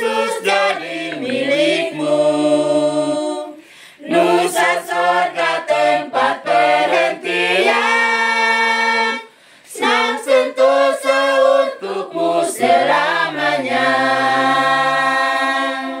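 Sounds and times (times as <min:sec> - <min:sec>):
women singing a hymn: 0:00.0 - 0:16.0
breath: 0:03.6 - 0:04.0, 0:09.3 - 0:09.7.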